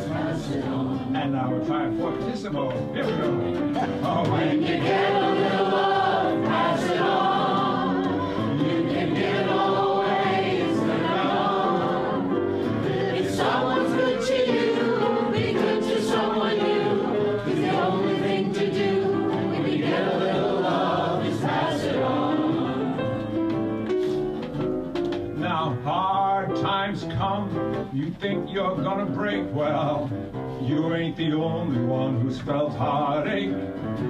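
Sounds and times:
group singing folk song: 0:00.0 - 0:01.9, 0:03.9 - 0:23.6, 0:28.8 - 0:34.0
piano: 0:00.0 - 0:34.0.

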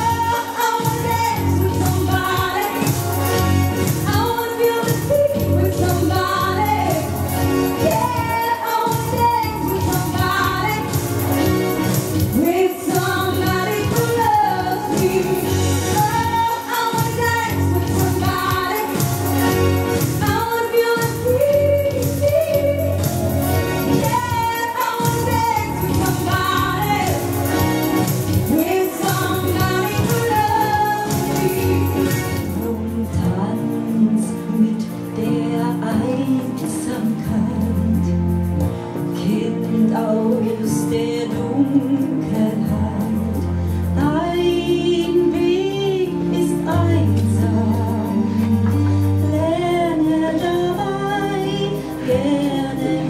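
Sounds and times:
instrumental accompaniment: 0:00.0 - 0:53.0
woman singing into microphone: 0:00.0 - 0:53.0.

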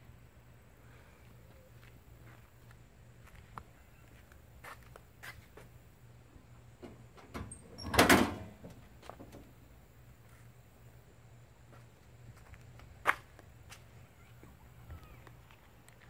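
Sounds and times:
metal hood clunk and rattle: 0:06.8 - 0:09.5.

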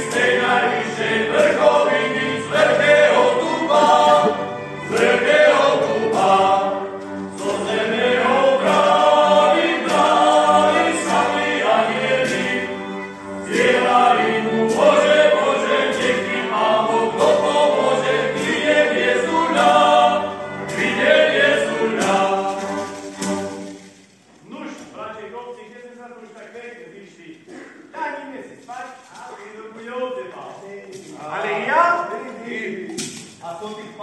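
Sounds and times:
group of carolers singing: 0:00.0 - 0:24.0.

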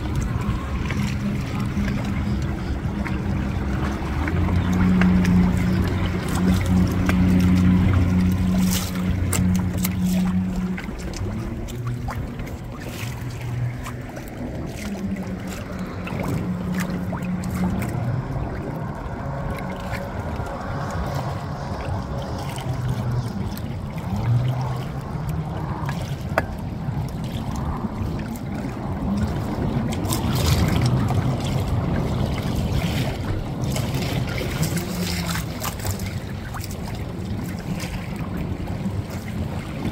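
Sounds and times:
low motor hum: 0:00.0 - 0:39.9
water lapping around boat: 0:00.0 - 0:39.9.

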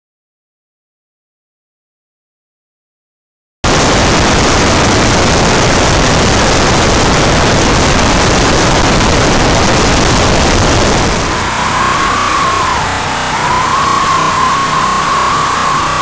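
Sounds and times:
aircraft engine and airflow rush: 0:03.7 - 0:16.0
music: 0:11.4 - 0:16.0.

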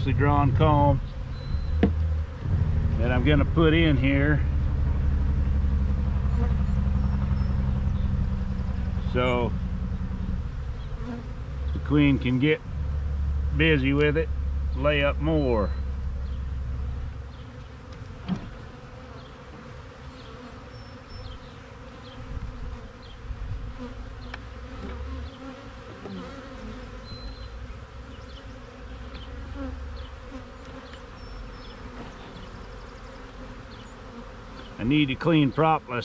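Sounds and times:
bees buzzing: 0:00.0 - 0:36.0.

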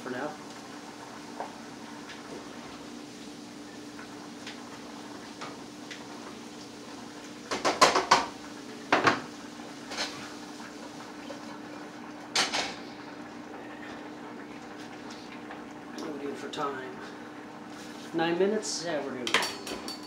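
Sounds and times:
metal utensils clattering: 0:19.3 - 0:20.0.

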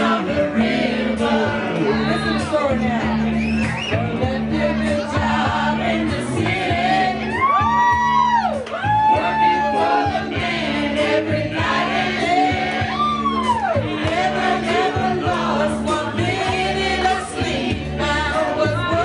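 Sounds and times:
amplified backing music with beat: 0:00.0 - 0:19.0
person singing into a microphone: 0:04.0 - 0:07.6, 0:14.6 - 0:19.0.

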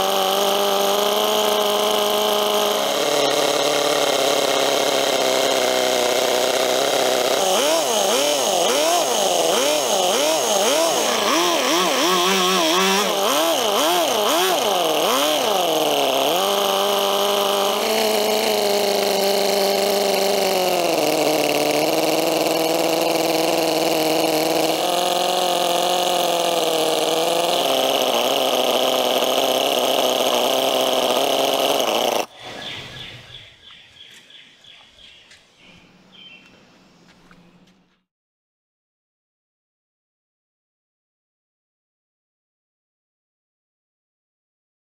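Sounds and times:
model engine revving: 0:00.0 - 0:33.6.

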